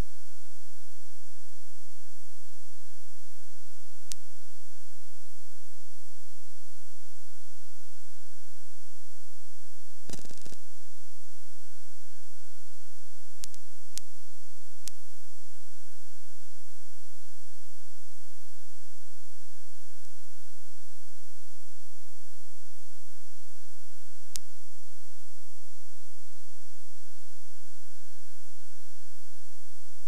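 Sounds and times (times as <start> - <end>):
electrical hum and whine: 0.0 - 30.0
crackle burst: 10.0 - 10.7.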